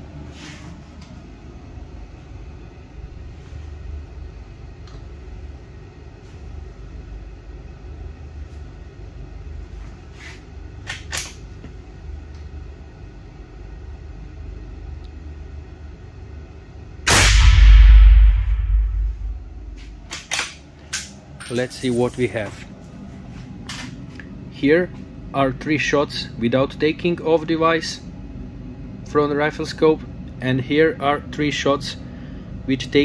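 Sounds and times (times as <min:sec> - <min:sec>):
low hum: 0:11.8 - 0:32.7.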